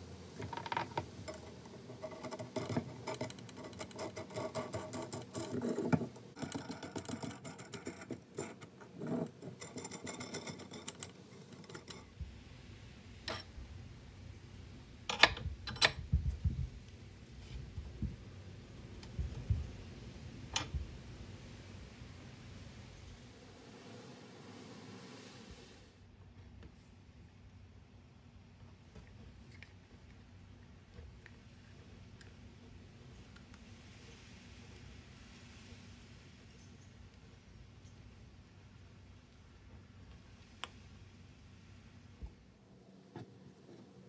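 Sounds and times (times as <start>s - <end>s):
metal nuts clinking on rod: 0.4s - 12.1s, 15.1s - 16.0s, 20.6s - 20.8s.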